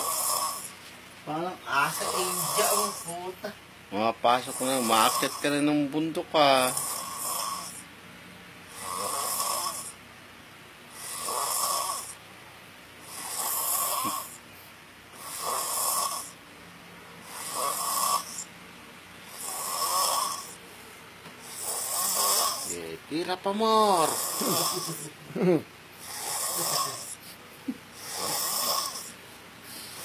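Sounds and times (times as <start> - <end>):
man snoring: 0.0 - 0.8, 1.8 - 3.1, 4.4 - 5.7, 6.6 - 7.9, 8.7 - 10.0, 10.9 - 12.2, 13.0 - 14.4, 15.2 - 16.4, 17.2 - 18.5, 19.3 - 20.6, 21.4 - 22.9, 23.9 - 25.2, 26.0 - 27.2, 27.9 - 29.2.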